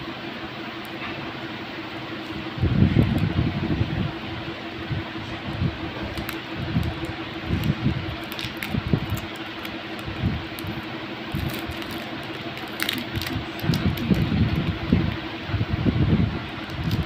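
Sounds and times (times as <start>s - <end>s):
steady hum: 0.0s - 17.0s
foil wrapper crackling: 5.9s - 15.2s, 16.5s - 17.0s.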